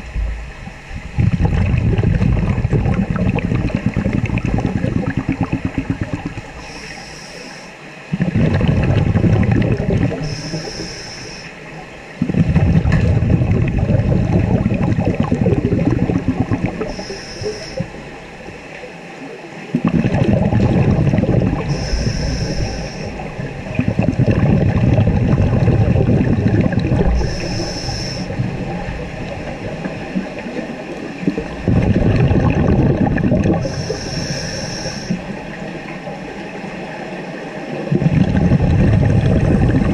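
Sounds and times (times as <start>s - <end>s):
exhaled bubbles rushing: 0.0s - 7.4s, 8.0s - 39.9s
scuba regulator inhale hiss: 6.6s - 7.8s, 10.2s - 11.6s, 16.8s - 18.0s, 21.7s - 23.2s, 27.1s - 28.4s, 33.6s - 35.3s.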